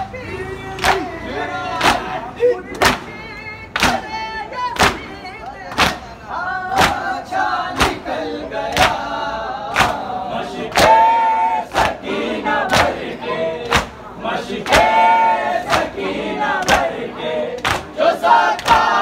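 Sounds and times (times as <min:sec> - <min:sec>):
men chanting together: 0:00.3 - 0:03.1, 0:05.8 - 0:19.0
hands slapping chests: 0:07.8 - 0:08.0.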